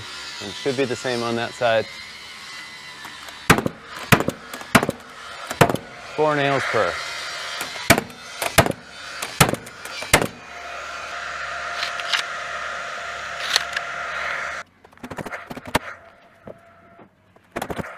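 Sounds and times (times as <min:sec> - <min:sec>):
steady hum: 0:00.0 - 0:14.7
nail gun shots: 0:03.0 - 0:05.9, 0:07.5 - 0:10.4.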